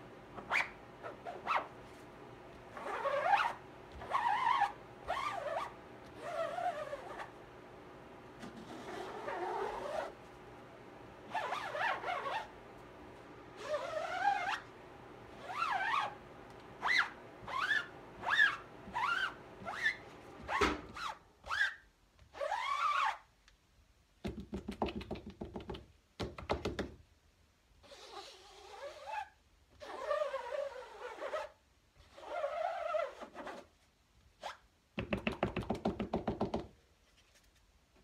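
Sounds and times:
squeegee squeaking on mesh: 0.4s - 1.7s, 2.7s - 7.3s, 8.6s - 10.2s, 11.3s - 12.5s, 13.6s - 14.7s, 15.4s - 16.2s, 16.8s - 23.3s, 27.8s - 33.7s
knock: 24.2s - 27.0s, 35.0s - 36.7s.

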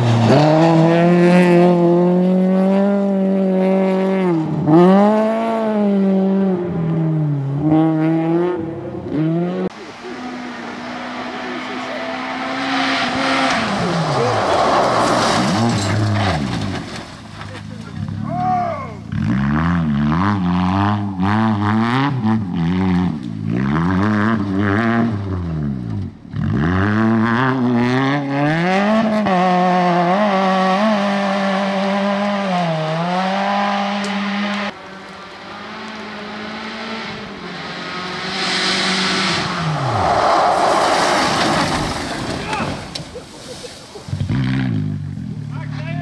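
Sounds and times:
rally car engines revving: 0.0s - 46.0s
car passing by: 9.4s - 17.6s, 32.9s - 44.8s.

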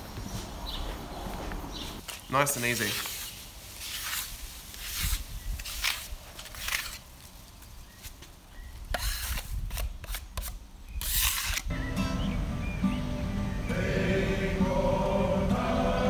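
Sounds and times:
brush scrubbing wood: 2.6s - 5.8s
choir music: 11.7s - 16.0s.

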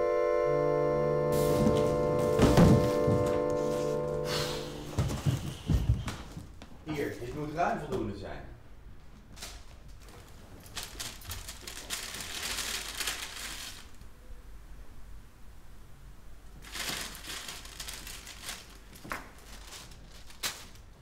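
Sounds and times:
paper bag crinkling: 1.4s - 4.2s, 9.3s - 14.1s, 16.6s - 21.0s
sharp paper crackle: 9.3s - 14.1s, 16.6s - 21.0s.

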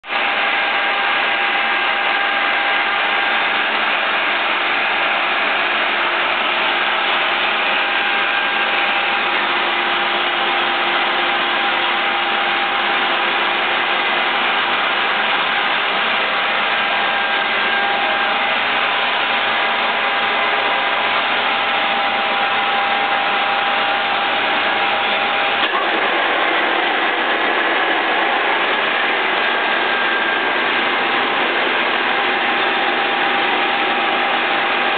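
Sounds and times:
boring machine whining: 0.2s - 34.9s.

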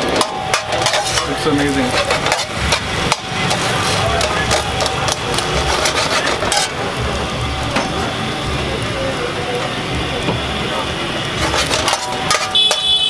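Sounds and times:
spatula scraping and tapping pan: 0.0s - 6.8s, 11.3s - 13.0s
sandwich sizzling on griddle: 0.0s - 13.0s.

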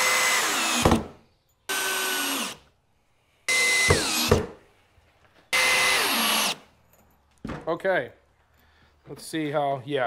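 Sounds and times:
cordless drill driving screws: 0.0s - 1.0s, 1.7s - 2.6s, 3.5s - 4.4s, 5.5s - 6.6s.

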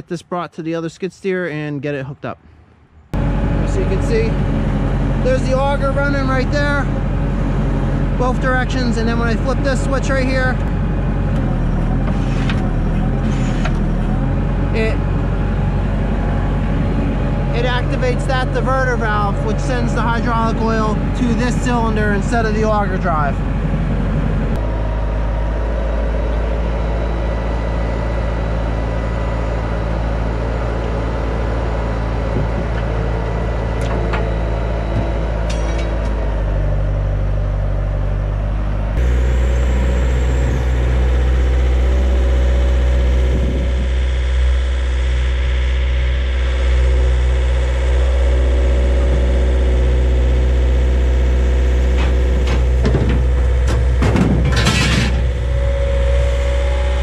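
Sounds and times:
diesel engine running: 3.0s - 57.0s.

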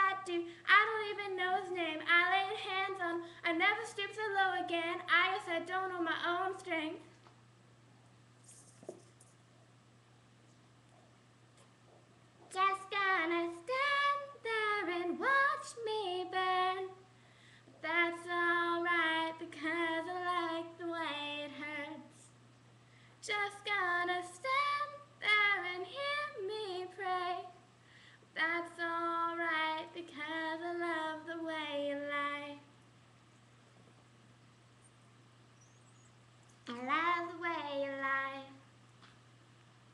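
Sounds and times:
woman singing in helium voice: 0.0s - 7.1s, 12.5s - 17.1s, 17.8s - 22.3s, 23.2s - 27.7s, 28.3s - 32.7s, 36.7s - 38.7s.

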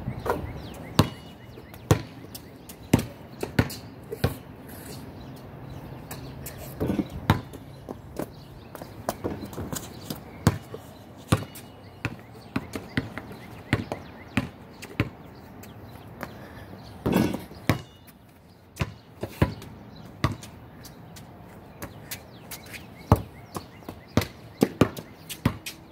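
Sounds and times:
basketball bouncing thuds: 1.0s - 2.2s, 6.8s - 15.2s, 17.0s - 18.0s, 18.8s - 20.5s, 23.1s - 25.6s.

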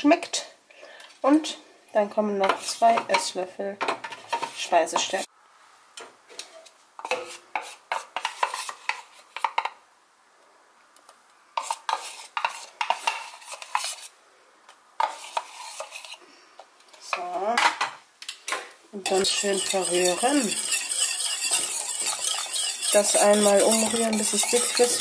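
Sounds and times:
spoon scraping a pot: 4.0s - 5.3s, 6.5s - 9.6s, 11.6s - 14.1s, 15.0s - 16.2s, 19.0s - 25.0s.

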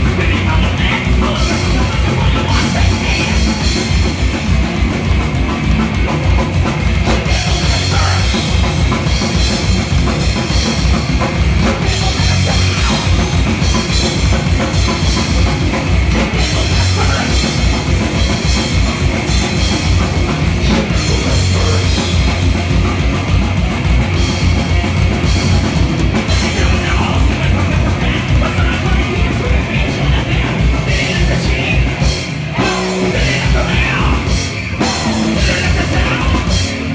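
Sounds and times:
distorted electric guitars: 0.0s - 36.9s
rapid drumming: 0.0s - 36.9s.

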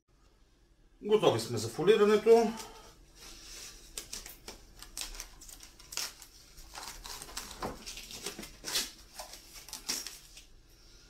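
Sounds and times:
cling film crackling and rustling: 3.5s - 10.6s.

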